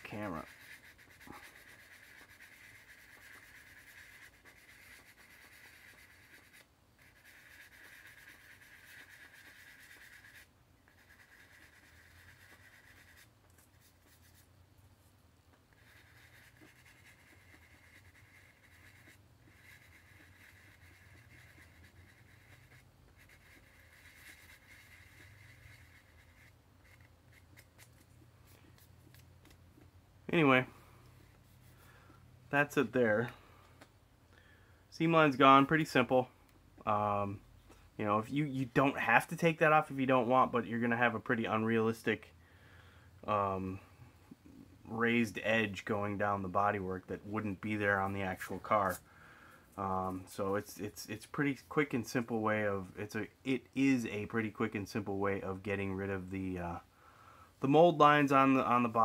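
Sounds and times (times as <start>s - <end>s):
sanding stick rubbing plastic: 0.0s - 14.5s, 15.7s - 28.1s.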